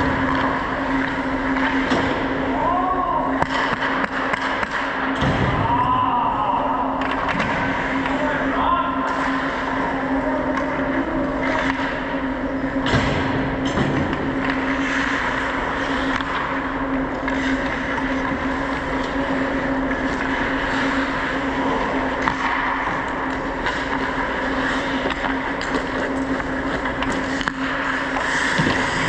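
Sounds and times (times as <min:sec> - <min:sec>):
constant hum: 0:00.0 - 0:29.0
skates rushing on ice: 0:13.0 - 0:29.0.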